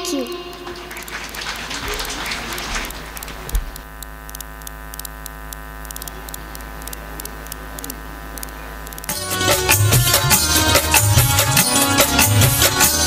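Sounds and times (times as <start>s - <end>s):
electrical hum and buzz: 0.0s - 13.0s
faint clicking crackle: 2.6s - 9.1s
music: 9.1s - 13.0s.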